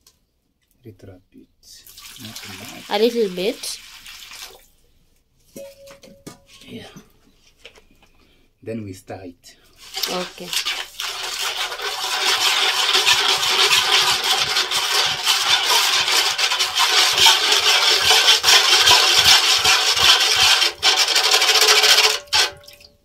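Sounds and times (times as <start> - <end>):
metal spoon scraping steel bowl: 9.9 - 22.6.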